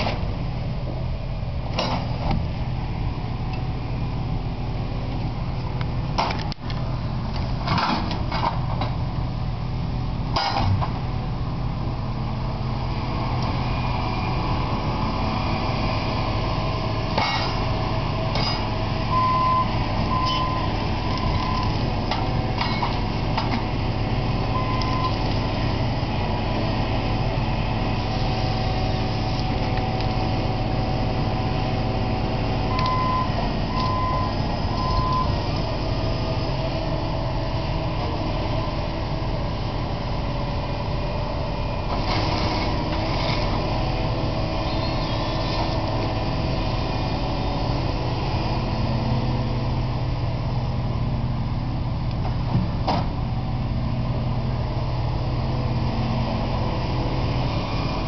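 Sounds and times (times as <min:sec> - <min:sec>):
diesel engine running: 0:00.0 - 0:58.0
travel alarm beeping: 0:19.1 - 0:21.7, 0:24.5 - 0:25.2, 0:32.7 - 0:35.4.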